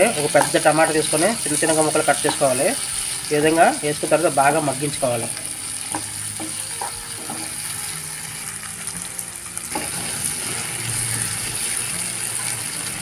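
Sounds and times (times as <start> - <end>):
vegetables sizzling in oil: 0.0 - 13.0
spatula scraping a pan: 5.9 - 7.7.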